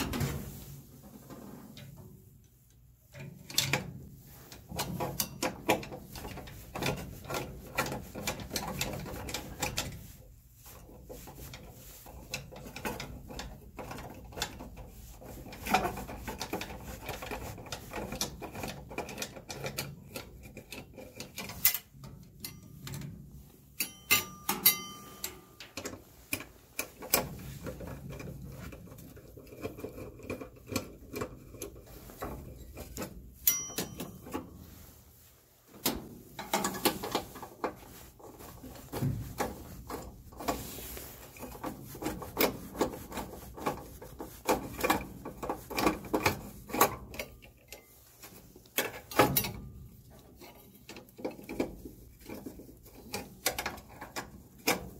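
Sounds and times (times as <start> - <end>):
screwdriver clicking and scraping: 15.6 - 23.1, 23.8 - 34.4
brief metallic rings: 23.9 - 25.6, 33.4 - 34.2.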